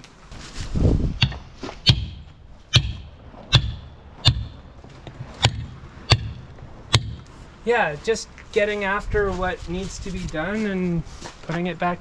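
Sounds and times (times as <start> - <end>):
mallet striking caulking iron: 1.2 - 4.7, 5.4 - 7.3.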